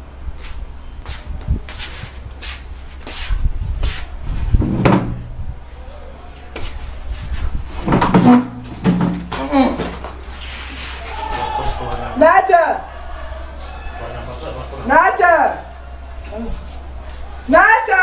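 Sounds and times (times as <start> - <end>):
wooden door knocks and clatters: 4.6 - 5.2
low steady hum: 11.6 - 18.0.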